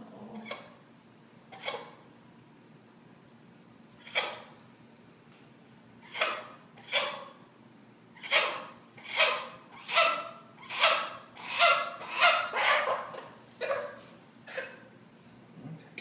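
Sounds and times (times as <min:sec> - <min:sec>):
hen squawking: 0:08.2 - 0:14.0.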